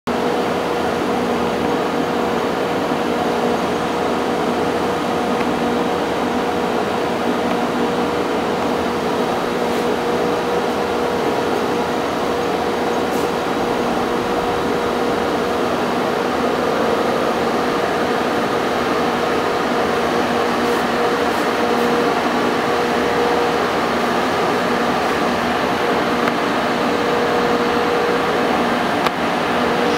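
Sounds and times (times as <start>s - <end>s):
lathe running: 0.1s - 29.9s.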